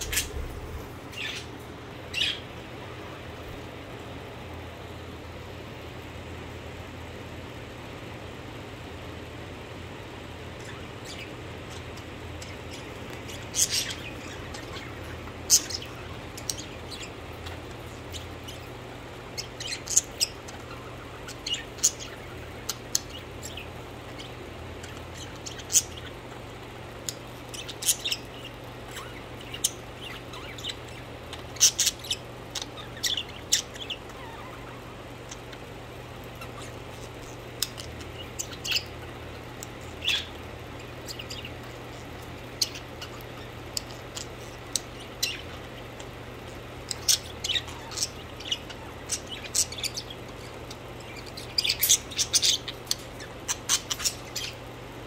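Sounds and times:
budgerigars chirping: 0.0 - 1.5, 10.6 - 35.6, 36.3 - 54.6
steady low hum: 0.0 - 55.0.

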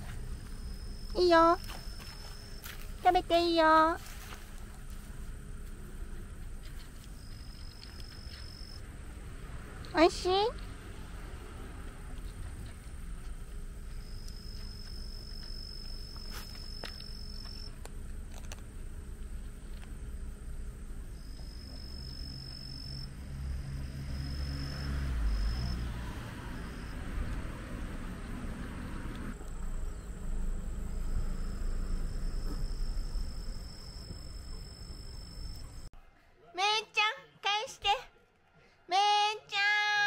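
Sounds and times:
insects trilling: 0.2 - 8.9, 13.0 - 35.9.

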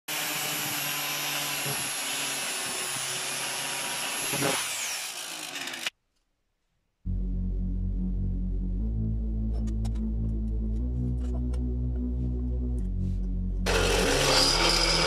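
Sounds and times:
angle grinder grinding steel: 13.7 - 15.0.

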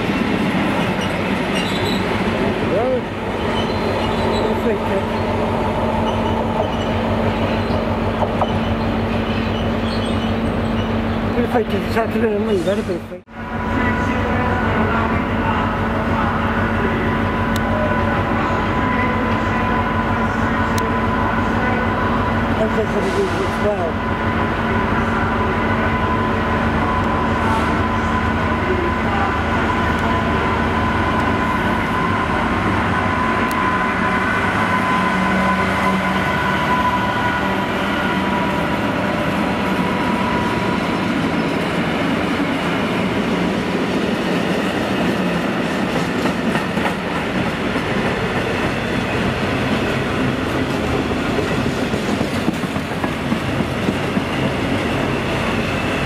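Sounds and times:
diesel locomotive engine: 0.0 - 56.0
train wheels clattering on rails: 44.1 - 55.6.

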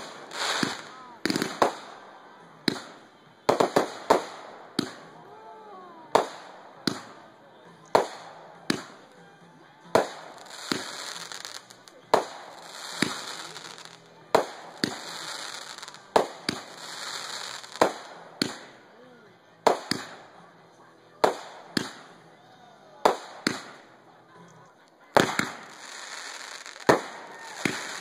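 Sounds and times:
fireworks bangs: 0.0 - 5.2, 6.1 - 7.3, 9.9 - 18.8, 19.6 - 20.4, 23.0 - 23.9, 25.1 - 28.0
crackling hiss of fireworks: 0.0 - 28.0.

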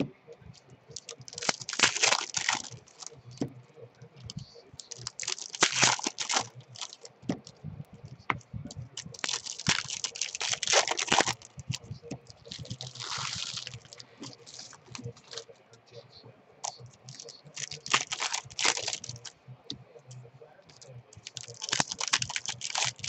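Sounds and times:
wrappers crinkling and tearing: 1.0 - 3.2, 4.2 - 7.4, 9.0 - 15.5, 16.6 - 19.3, 20.7 - 23.0.

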